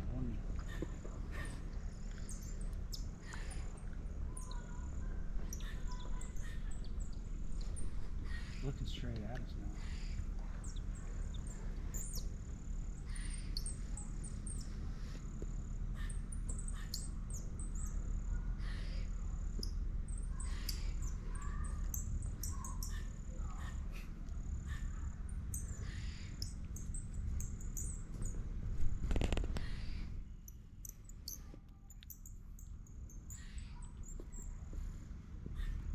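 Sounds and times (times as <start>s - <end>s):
bird call squeaking chirps: 5.5s - 7.0s, 8.2s - 8.8s, 9.8s - 12.3s, 16.0s - 18.0s, 18.6s - 23.8s, 33.1s - 34.5s
insect trill: 9.7s - 28.4s.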